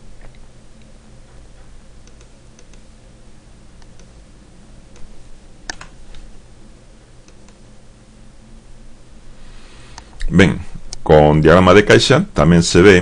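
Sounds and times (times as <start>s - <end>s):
steady low hum: 0.0s - 13.0s
keyboard and mouse clicks: 2.0s - 2.9s, 4.9s - 6.2s, 7.2s - 7.6s.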